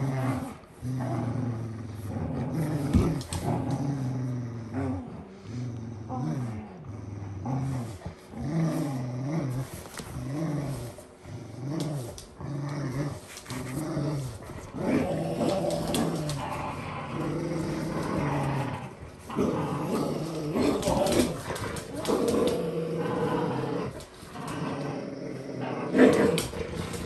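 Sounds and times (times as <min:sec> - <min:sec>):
dogs growling: 0:00.0 - 0:27.0.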